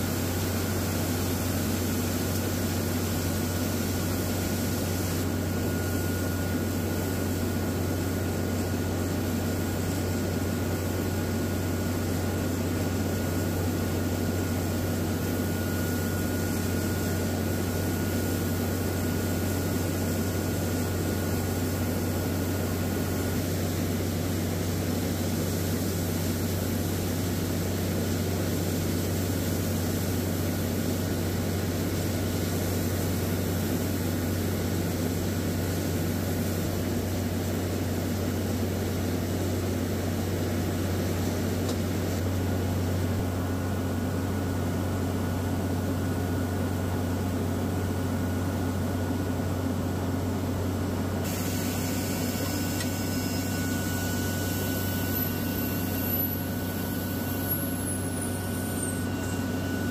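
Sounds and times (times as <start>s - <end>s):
diesel engine and compressor droning: 0.0s - 59.9s
faint high whine: 2.3s - 9.0s, 14.2s - 24.6s, 51.3s - 59.9s.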